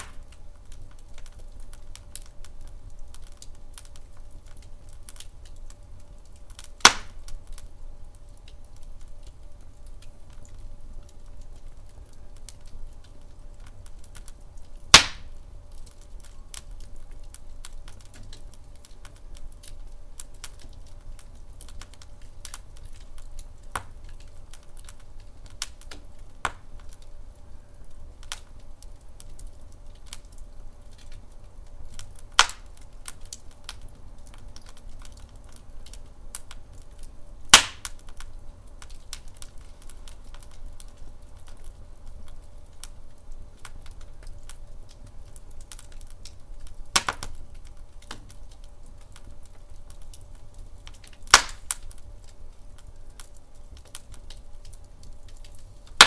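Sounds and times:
loud sharp pops: 0.0s - 0.3s, 6.8s - 7.2s, 14.9s - 15.3s, 25.9s - 26.6s, 32.4s - 32.7s, 37.5s - 38.0s, 47.0s - 47.4s, 51.3s - 51.8s
logs crackling in fireplace: 0.0s - 56.0s
low fire rumble: 0.0s - 56.0s.

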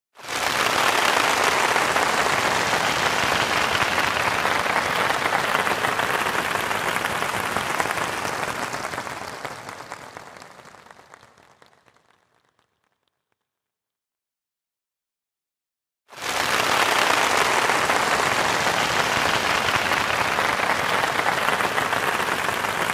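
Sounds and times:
large audience applauding: 0.2s - 12.8s, 16.1s - 22.9s.

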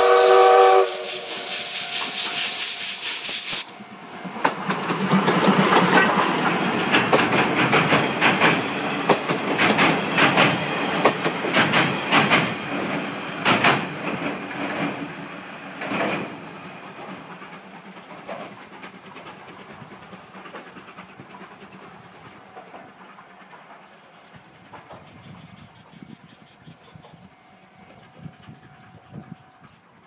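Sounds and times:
train wheels clacking over rail joints: 0.0s - 25.7s.

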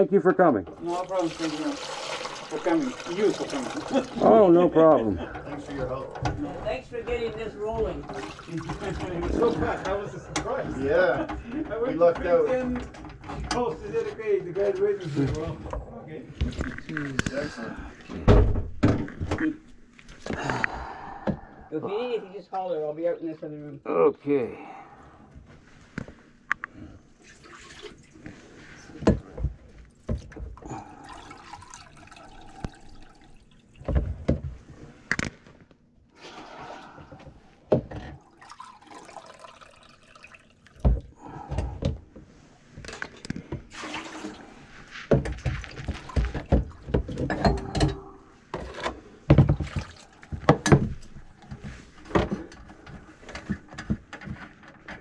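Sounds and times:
liquid sloshing and gurgling: 0.7s - 11.6s, 26.8s - 29.0s, 29.9s - 34.8s, 36.1s - 41.9s, 42.8s - 53.7s.

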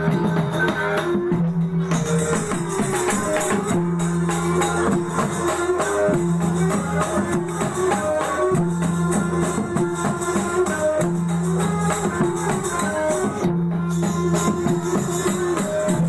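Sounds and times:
jingling percussion: 0.0s - 16.0s
lute and violin ensemble: 0.0s - 16.0s.

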